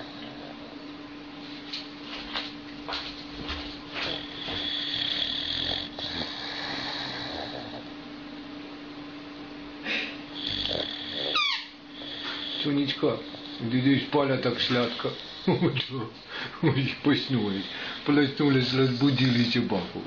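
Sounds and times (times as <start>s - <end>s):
dog snoring: 0.0s - 0.9s, 3.7s - 8.0s, 9.9s - 15.8s, 17.0s - 19.9s.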